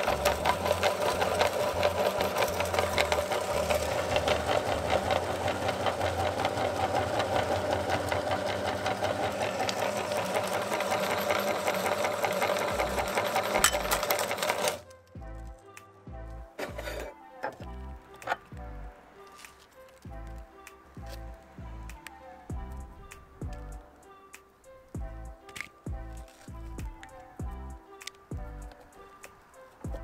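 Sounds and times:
meat grinder running: 0:00.0 - 0:14.8.

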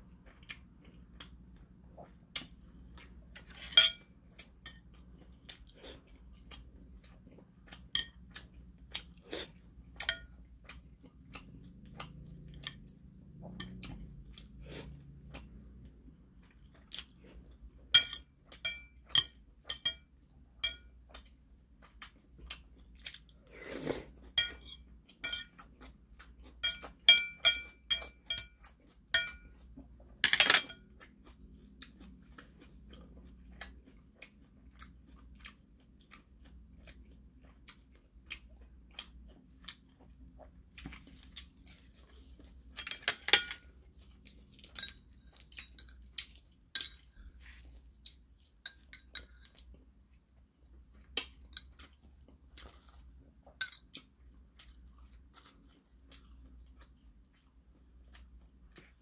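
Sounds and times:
chopsticks clinking on dish: 0:03.6 - 0:04.8, 0:10.0 - 0:10.3, 0:17.9 - 0:20.9, 0:24.4 - 0:25.6, 0:26.6 - 0:29.5, 0:30.2 - 0:30.9, 0:42.8 - 0:43.8, 0:44.5 - 0:47.6, 0:48.6 - 0:49.6, 0:53.6 - 0:53.9
wet chewing: 0:30.9 - 0:43.0.

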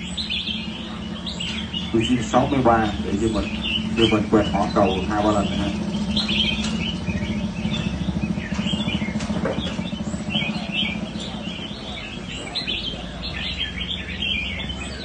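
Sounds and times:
songbirds singing: 0:00.0 - 0:15.0
steady low hum: 0:00.0 - 0:15.0.

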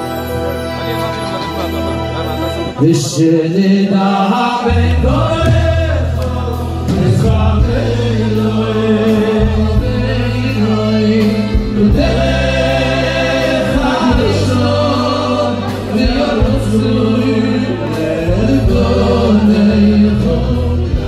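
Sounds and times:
men singing through sound system: 0:02.8 - 0:21.0
group of men singing along: 0:03.1 - 0:21.0
steady low notes: 0:04.7 - 0:21.0.

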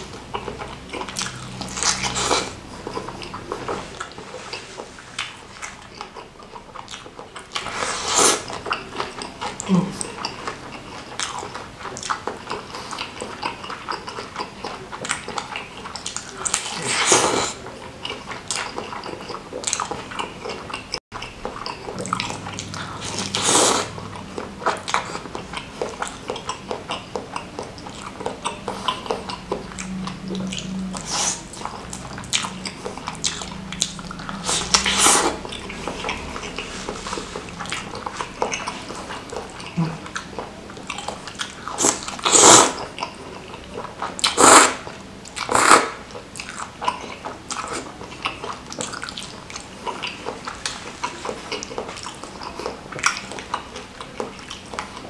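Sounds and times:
wet chewing: 0:00.0 - 0:55.0
clicking mouth sounds: 0:18.0 - 0:36.7
hissy mouth sounds: 0:21.9 - 0:42.9.

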